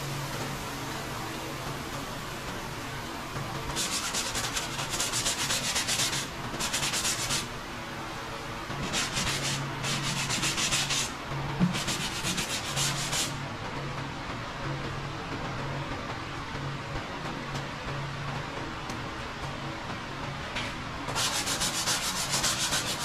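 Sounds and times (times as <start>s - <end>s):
sandpaper strokes: 3.8s - 7.5s, 8.8s - 11.1s, 11.7s - 13.4s, 21.1s - 23.0s.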